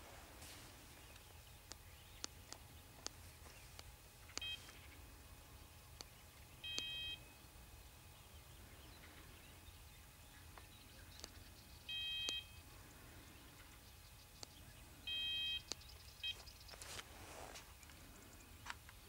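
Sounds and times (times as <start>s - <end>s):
short electronic beeps: 4.4s - 4.6s, 6.6s - 7.3s, 11.9s - 12.6s, 15.1s - 16.4s
faint clicks: 10.5s - 11.5s, 13.6s - 14.6s, 15.6s - 16.9s.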